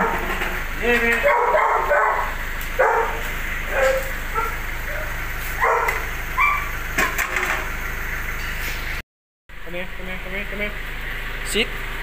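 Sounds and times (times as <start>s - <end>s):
steady low hum: 0.0s - 7.0s
dog barking and yipping: 1.2s - 6.8s.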